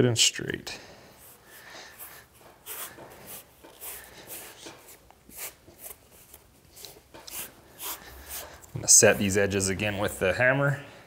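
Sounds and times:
hands rubbing leather: 1.2 - 9.2.

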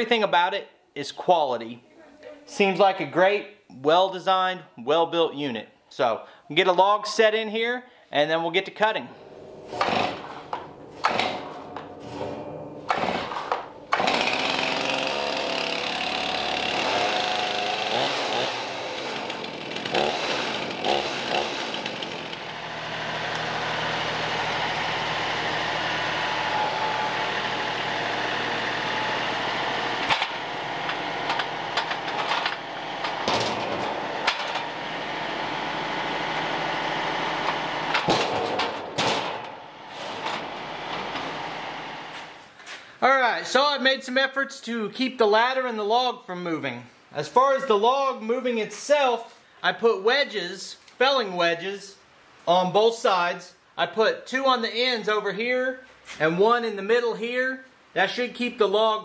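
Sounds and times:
metal frame clanking: 9.0 - 16.6, 26.0 - 35.6, 37.3 - 42.4
tractor diesel engine running: 9.1 - 42.4.

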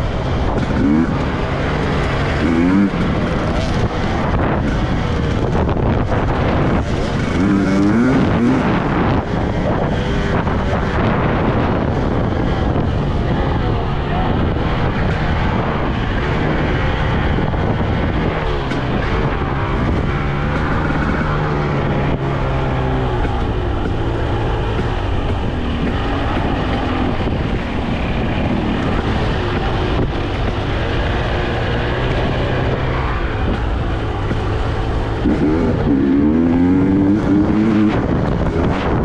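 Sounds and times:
dirt bike engine revving: 0.0 - 39.0.

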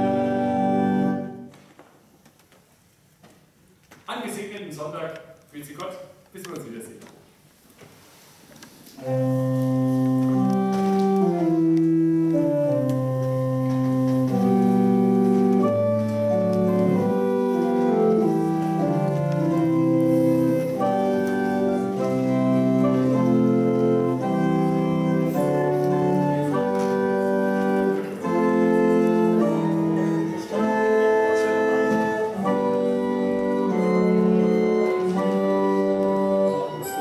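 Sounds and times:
church organ chords: 0.0 - 1.5, 9.0 - 37.0.

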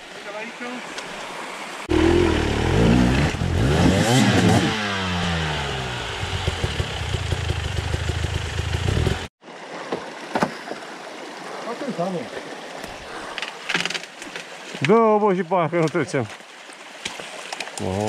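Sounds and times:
motorcycle engine revving: 1.9 - 9.3.

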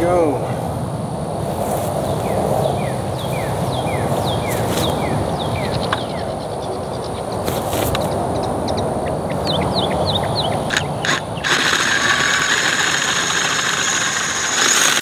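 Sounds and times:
birds chirping: 1.8 - 12.5
cordless drill motor under load: 10.7 - 15.0
drill bit whining into steel: 10.7 - 15.0.

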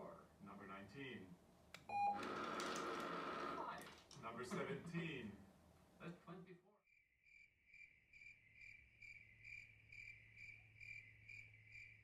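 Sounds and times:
tv speech: 0.0 - 1.4, 3.5 - 6.8
cricket chirping: 6.9 - 12.0.

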